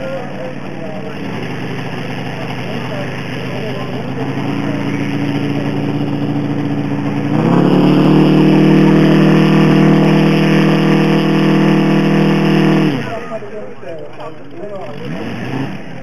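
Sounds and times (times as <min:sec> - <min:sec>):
model airplane engine running: 0:00.6 - 0:13.4.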